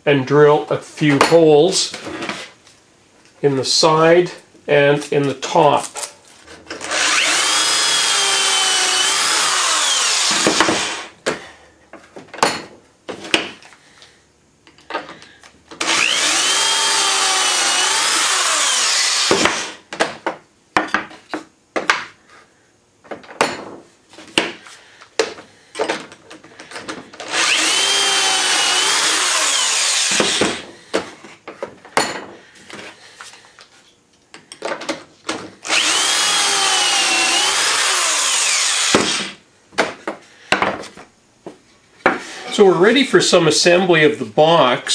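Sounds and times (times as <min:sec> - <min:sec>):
drill boring into wood: 0:06.8 - 0:11.1, 0:15.8 - 0:19.8, 0:27.2 - 0:30.6, 0:35.6 - 0:39.4.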